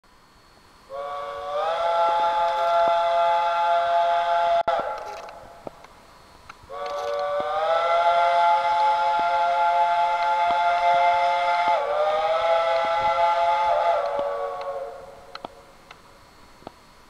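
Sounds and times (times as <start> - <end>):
steam locomotive chime whistle: 0.9 - 5.3, 6.7 - 15.5.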